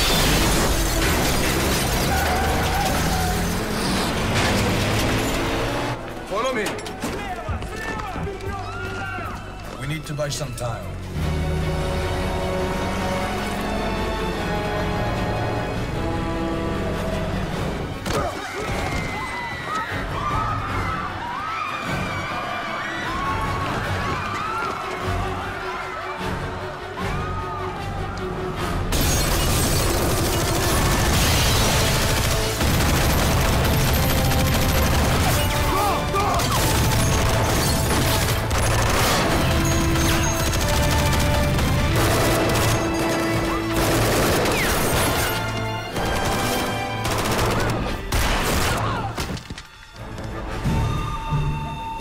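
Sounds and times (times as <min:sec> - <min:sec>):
action music score: 0:00.0 - 0:52.0
automatic gunfire: 0:29.7 - 0:35.6, 0:36.3 - 0:45.2, 0:46.0 - 0:48.8.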